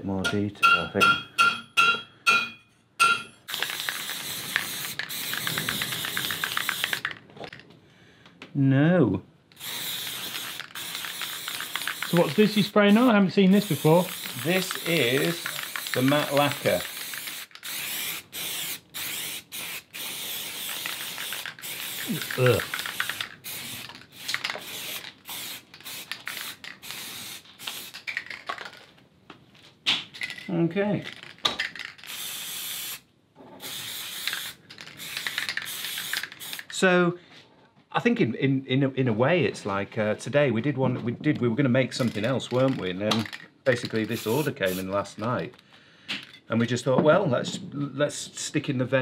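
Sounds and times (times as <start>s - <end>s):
aerosol can spraying: 3.5s - 7.1s, 9.6s - 28.3s, 32.0s - 33.0s, 33.6s - 36.7s, 43.2s - 45.0s.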